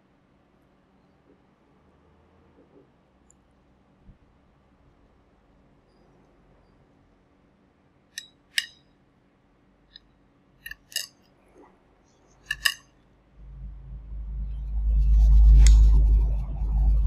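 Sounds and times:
metal utensils clicking on dish: 0:10.6 - 0:11.2, 0:12.4 - 0:12.9
low rumble: 0:13.4 - 0:17.0.

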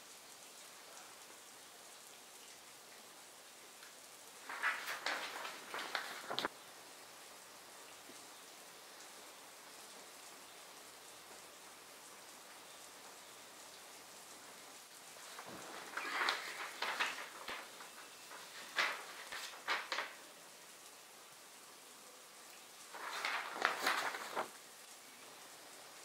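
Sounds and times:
steady low hiss: 0:00.0 - 0:26.0
paper crinkling: 0:04.4 - 0:06.5, 0:15.2 - 0:20.3, 0:22.9 - 0:24.6.

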